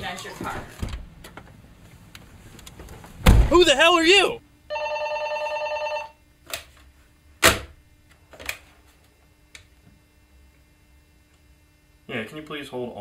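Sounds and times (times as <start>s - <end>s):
desk telephone ringing: 4.7s - 6.2s.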